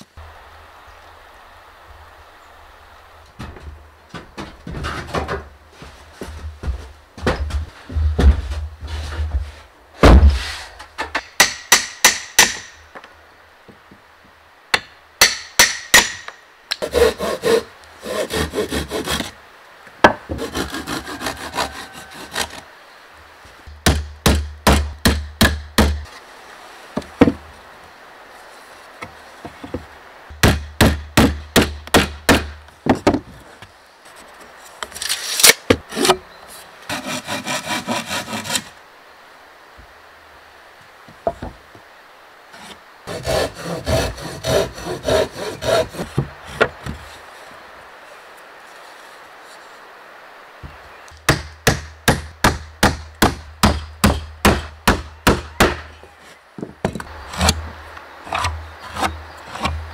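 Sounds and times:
scraping strokes on wood: 15.3s - 19.4s, 20.3s - 22.6s, 33.4s - 38.7s, 42.5s - 47.3s, 58.3s - 59.9s.

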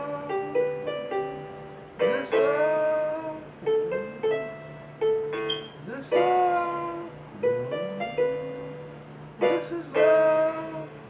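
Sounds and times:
electronic keyboard piano chords: 0.0s - 11.0s
steady low hum: 0.0s - 11.0s.

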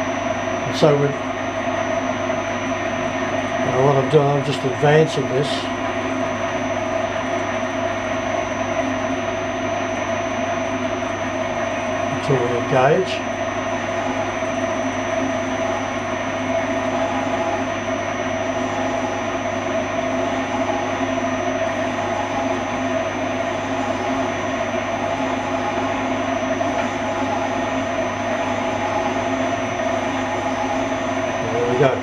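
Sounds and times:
faint high whine: 0.0s - 32.0s
boring machine cutting metal: 11.8s - 32.0s.

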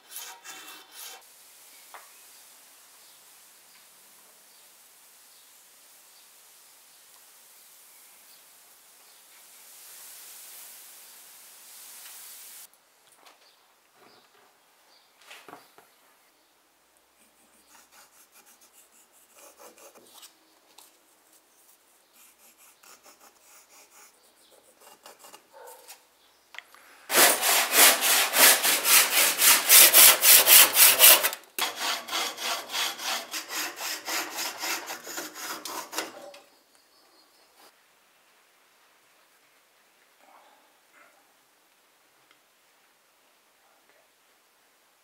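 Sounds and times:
hand saw cutting wood: 0.0s - 1.2s, 22.3s - 25.5s, 27.1s - 36.3s
pencil scratching on wood: 17.2s - 20.0s, 22.2s - 25.7s, 27.1s - 36.3s.

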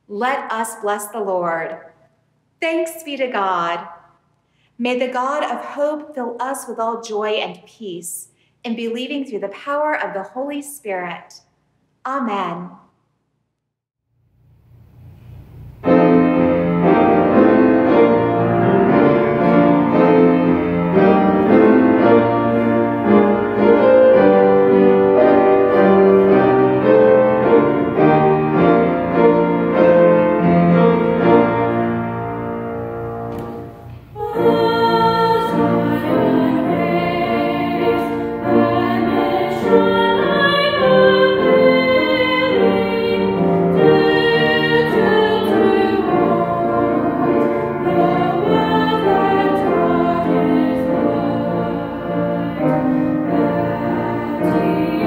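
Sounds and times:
piano playing: 15.5s - 55.0s
two girls singing: 34.2s - 55.0s.

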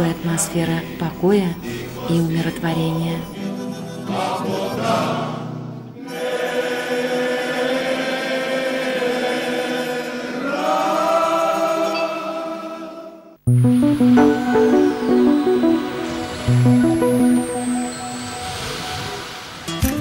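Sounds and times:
choir singing chant: 3.4s - 16.0s.

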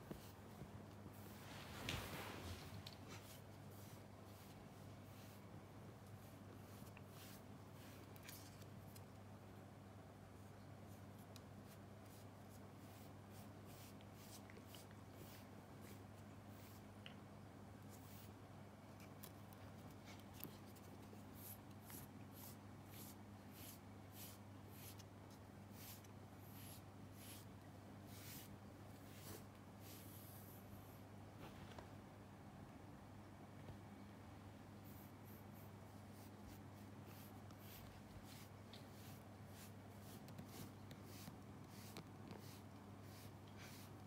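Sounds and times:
brush scratching through cat fur: 0.0s - 9.1s, 10.5s - 17.0s, 17.8s - 31.1s, 34.8s - 44.0s
file brushing through fur: 34.9s - 44.0s.

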